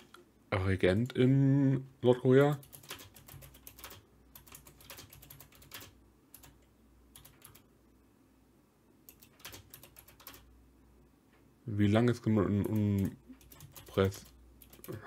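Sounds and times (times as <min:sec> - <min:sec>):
faint keyboard typing: 0:02.3 - 0:07.7, 0:09.0 - 0:10.5, 0:12.3 - 0:15.0.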